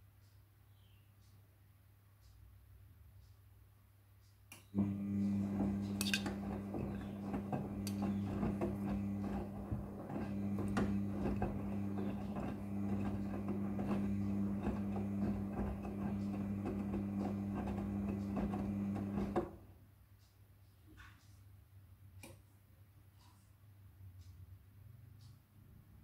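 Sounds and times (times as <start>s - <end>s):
washing machine click: 4.8s - 19.6s
drum motor humming: 4.8s - 19.7s.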